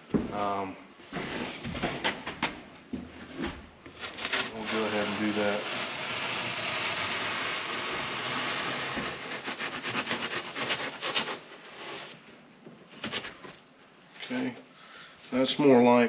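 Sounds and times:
knife cutting fiberglass board: 4.0 - 12.2.

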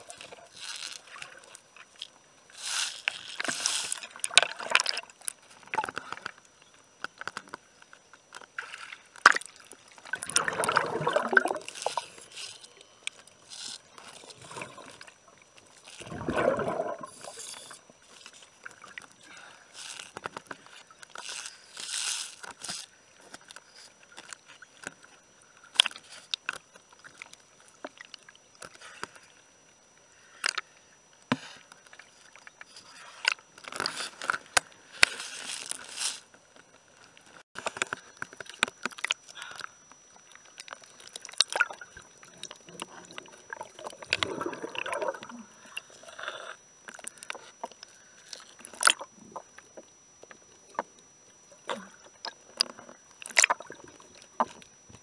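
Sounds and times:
gurgling air bubbles: 10.1 - 11.8, 16.0 - 17.4, 42.7 - 45.6.

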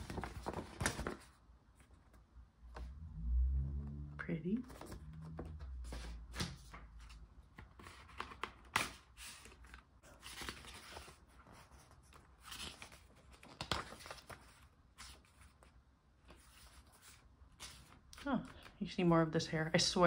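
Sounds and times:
paper rustling and crinkling: 0.0 - 2.2, 4.6 - 18.7.

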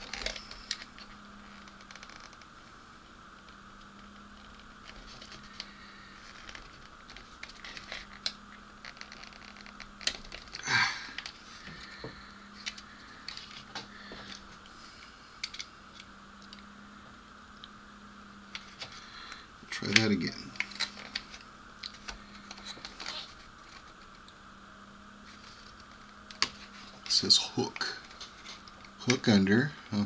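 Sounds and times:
steady low hum: 0.0 - 30.0
plastic parts clicking: 15.4 - 16.6.

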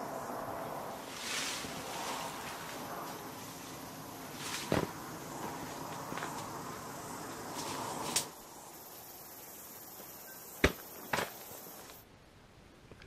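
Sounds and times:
footsteps crunching on gravel: 4.4 - 6.6.

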